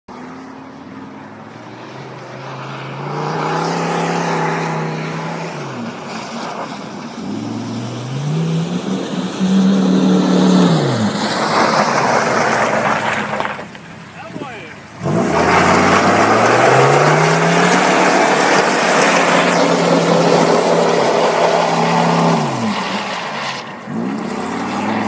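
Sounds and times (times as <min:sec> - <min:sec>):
truck engine revving: 0:07.2 - 0:25.0.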